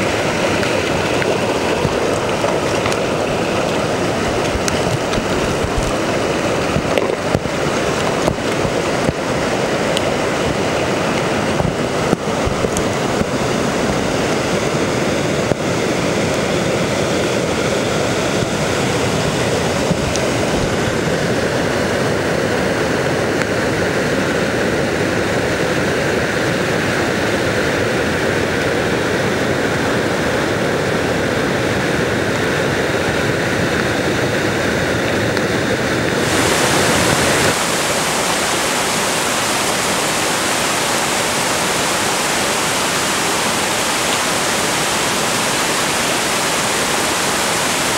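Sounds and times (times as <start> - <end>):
waterfall rushing over rock: 0.0 - 47.9.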